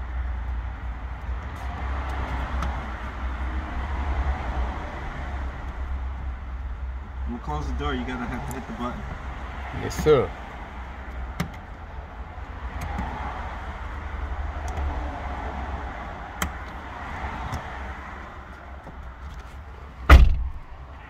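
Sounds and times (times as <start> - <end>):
faint clicks: 14.6 - 14.9
car door shutting thump: 20.1 - 20.7.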